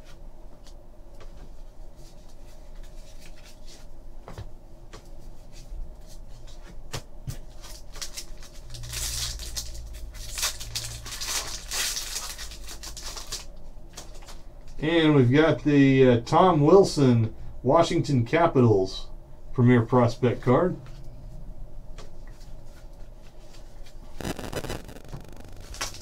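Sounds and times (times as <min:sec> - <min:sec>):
foil pack crinkling and tearing: 0:07.6 - 0:14.4, 0:24.2 - 0:26.0.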